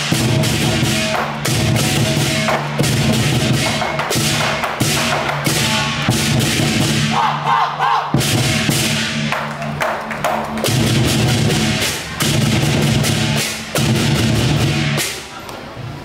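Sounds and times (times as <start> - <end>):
hand cymbals clashing: 0.0 - 7.1
barrel drums beating: 0.0 - 7.2, 8.1 - 15.2.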